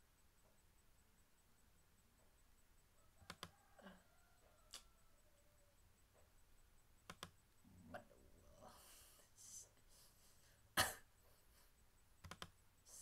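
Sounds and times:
computer mouse clicks: 3.2s - 3.5s, 7.0s - 7.4s, 12.2s - 12.6s
soft breathy noise: 7.6s - 12.0s, 12.8s - 13.0s.

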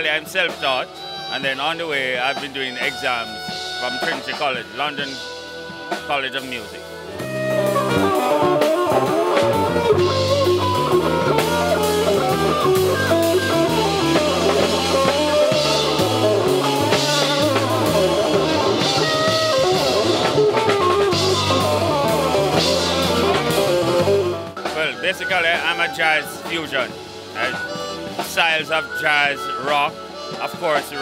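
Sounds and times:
bass guitar line: 0.0s - 31.0s
drum kit: 0.0s - 31.0s
electric guitar lines: 6.8s - 31.0s.

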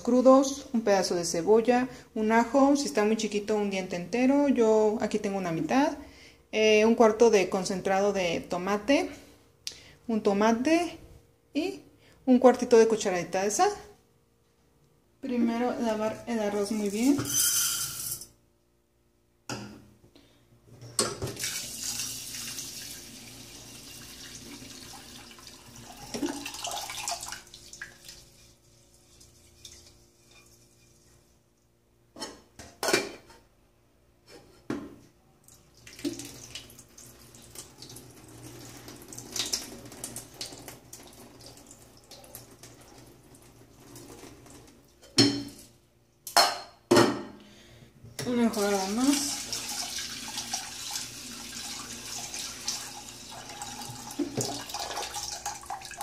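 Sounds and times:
water pouring into sink: 21.3s - 28.6s, 35.8s - 44.8s, 48.7s - 56.0s.

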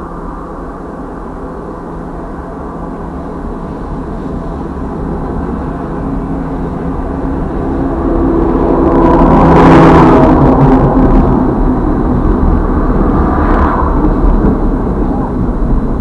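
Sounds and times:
diesel locomotive engine rumble: 0.0s - 16.0s.

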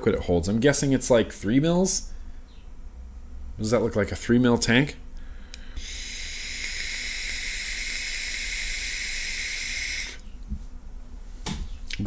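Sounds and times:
airy hiss of vape draw: 5.7s - 10.3s.

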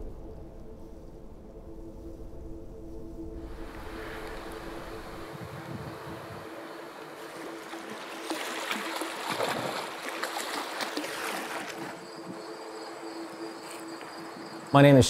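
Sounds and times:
high insect trill: 2.8s - 15.0s
water lapping against rocks: 3.9s - 12.5s.

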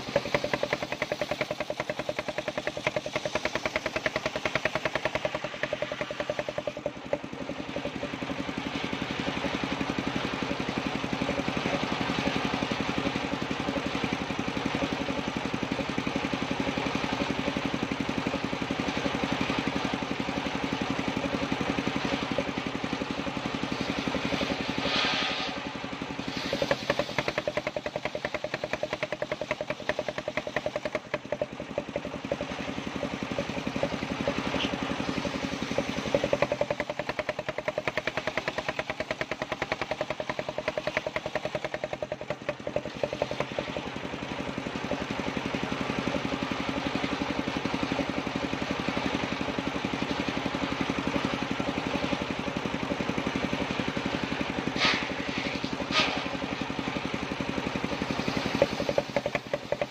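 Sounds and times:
saw rig engine running: 0.0s - 59.9s.

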